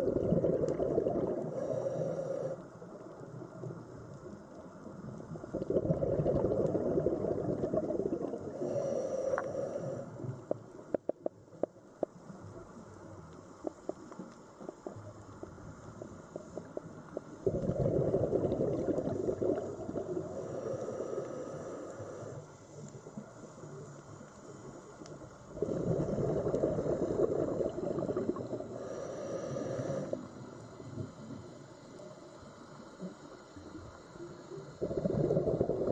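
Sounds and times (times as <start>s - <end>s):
steady low hiss: 0.0s - 35.9s
underwater bubbling and gurgling: 0.0s - 35.9s
underwater rushing noise: 24.5s - 31.6s.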